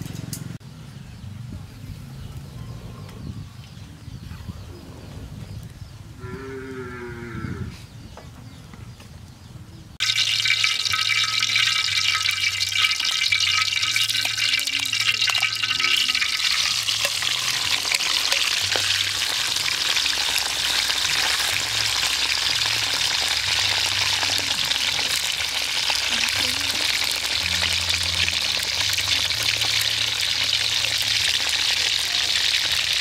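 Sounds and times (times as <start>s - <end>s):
oil sizzling in a wok: 10.0s - 33.0s.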